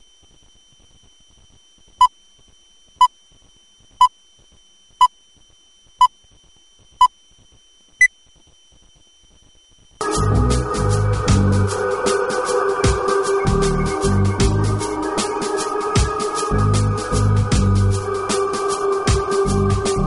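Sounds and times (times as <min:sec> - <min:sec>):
music: 0:10.0 - 0:20.0.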